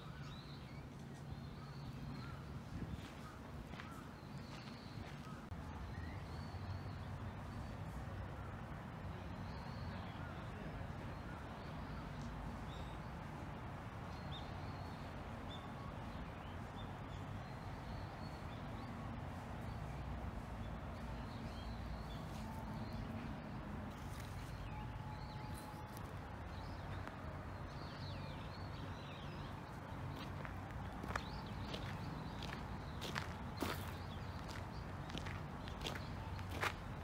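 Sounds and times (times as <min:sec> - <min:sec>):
small birds chirping: 0:23.9 - 0:37.0.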